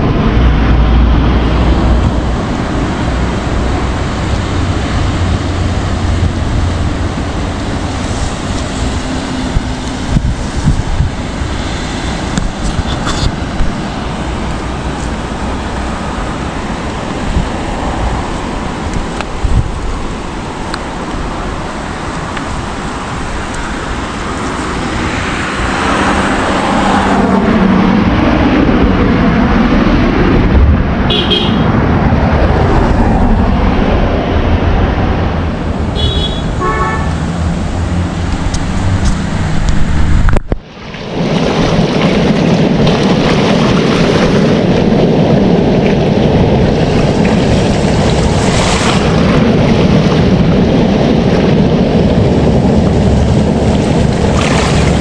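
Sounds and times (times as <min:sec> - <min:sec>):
roadside traffic noise: 0:00.0 - 0:55.0
wind on microphone: 0:00.0 - 0:55.0
vehicle horn toot: 0:31.1 - 0:31.7, 0:36.0 - 0:37.2.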